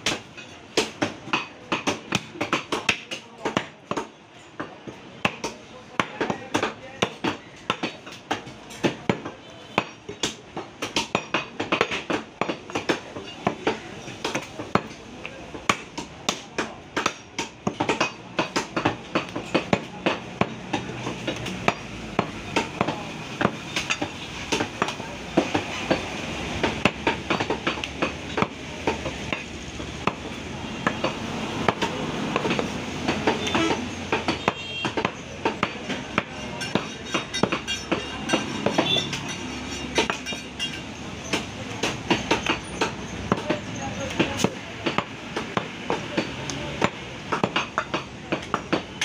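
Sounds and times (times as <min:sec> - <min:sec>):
market background noise: 0:00.0 - 0:49.0
knife chopping meat on wooden block: 0:15.5 - 0:25.6.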